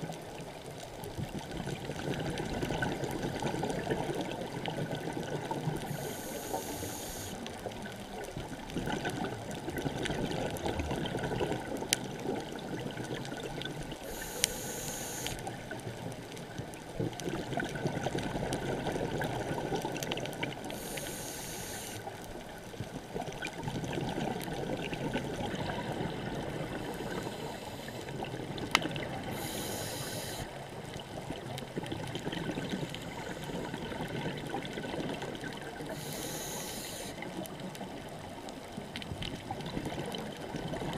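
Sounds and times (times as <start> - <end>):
underwater rush of water: 0.0 - 40.9
scuba regulator hissing: 14.1 - 15.4, 29.4 - 30.5.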